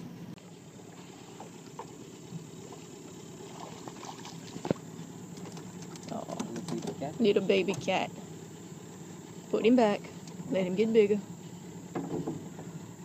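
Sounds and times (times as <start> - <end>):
river ambience: 0.0 - 13.0
knocks in boat: 11.9 - 12.7.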